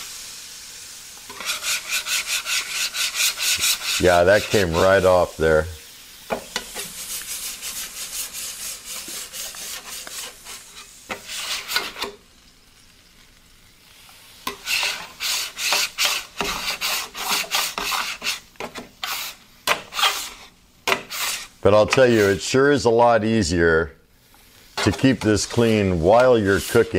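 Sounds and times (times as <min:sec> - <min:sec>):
scraper rasping on griddle: 0:01.3 - 0:05.2, 0:06.6 - 0:12.2, 0:14.4 - 0:22.5, 0:24.8 - 0:26.9.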